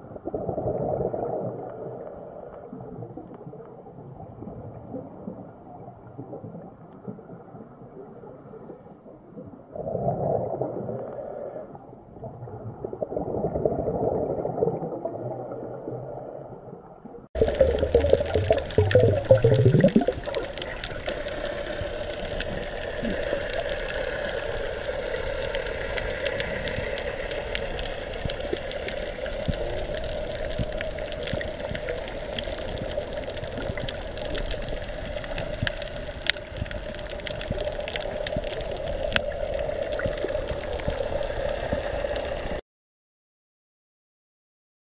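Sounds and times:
muffled underwater rushing: 0:17.3 - 0:42.6
steady hiss: 0:17.4 - 0:42.6.

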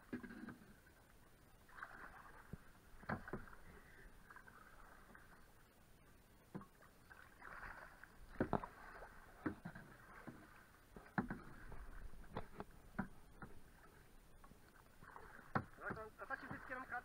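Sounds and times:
paddle splashing in water: 0:00.0 - 0:05.6, 0:06.5 - 0:17.0
moving water: 0:00.0 - 0:17.0
paddle knocks: 0:02.5 - 0:03.6, 0:08.3 - 0:13.7, 0:15.0 - 0:17.0.

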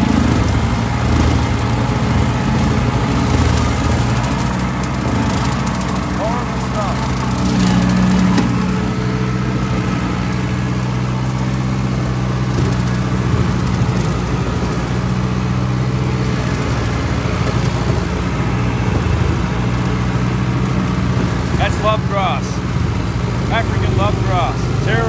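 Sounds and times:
tractor engine under load: 0:00.0 - 0:25.0.

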